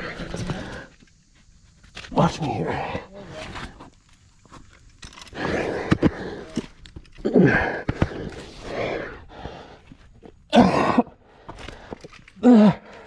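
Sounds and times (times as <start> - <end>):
strained grunts: 7.2 - 9.7, 10.5 - 13.0
person breathing hard: 7.2 - 13.0.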